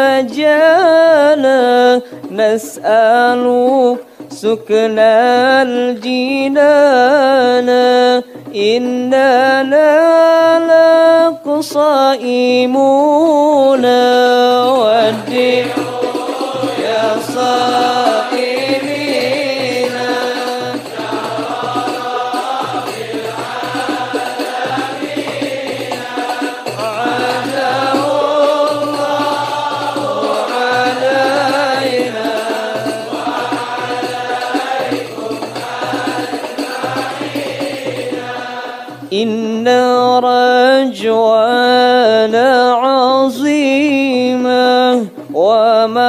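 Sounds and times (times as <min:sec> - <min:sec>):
wordless chanted melody: 0:00.0 - 0:46.0.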